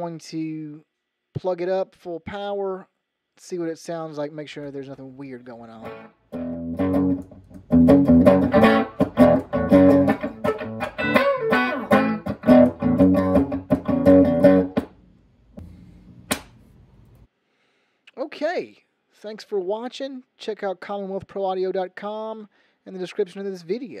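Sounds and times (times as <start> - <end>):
electric guitar notes and chords: 5.8 - 14.9
cable pop from amp jack: 16.3 - 16.6.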